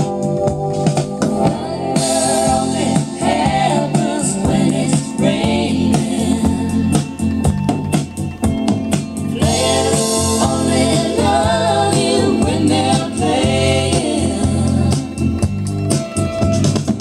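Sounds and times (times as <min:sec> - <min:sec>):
song from a vinyl record: 0:00.0 - 0:17.0
steady bass line: 0:00.0 - 0:17.0
backing voices: 0:01.4 - 0:08.3, 0:09.2 - 0:15.6.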